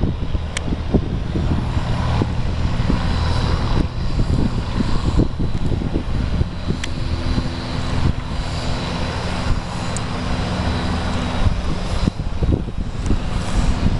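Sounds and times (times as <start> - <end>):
light aircraft engine drone: 0.0 - 13.9.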